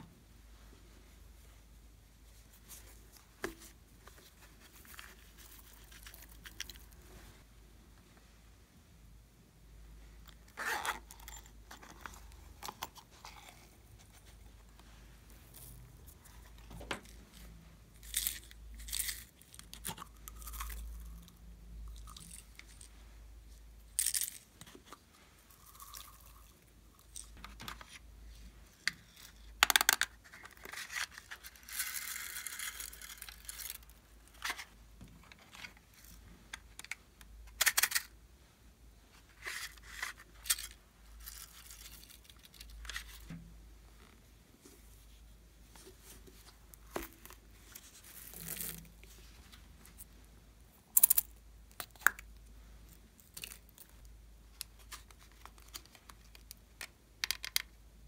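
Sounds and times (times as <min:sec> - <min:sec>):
plastic toys clicking and clacking: 0:55.8 - 0:57.8.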